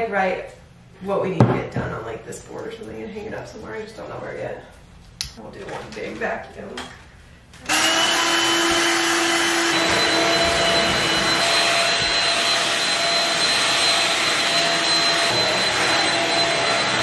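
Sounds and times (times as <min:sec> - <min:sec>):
vacuum cleaner whining: 0:07.6 - 0:17.0.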